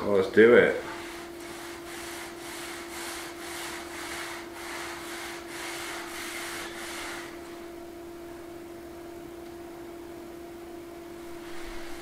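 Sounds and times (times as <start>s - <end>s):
steady hum: 0.0s - 12.0s
cloth rubbing wooden board: 0.9s - 7.7s, 11.2s - 12.0s.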